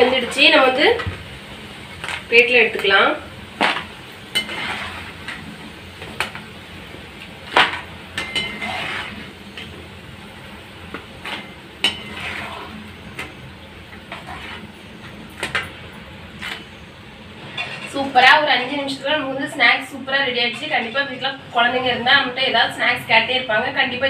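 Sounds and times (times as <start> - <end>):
frying oil sizzling: 0.0 - 24.0.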